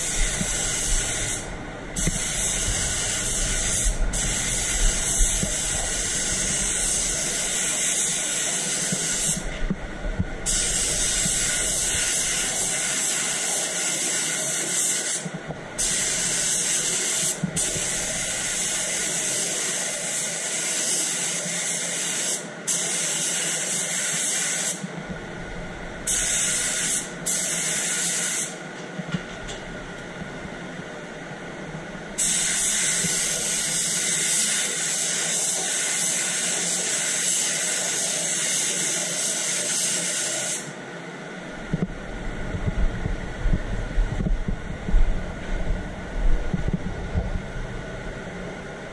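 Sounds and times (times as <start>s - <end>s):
spray gun hissing: 0.0s - 9.7s, 10.4s - 24.8s, 26.1s - 28.6s, 32.2s - 40.7s.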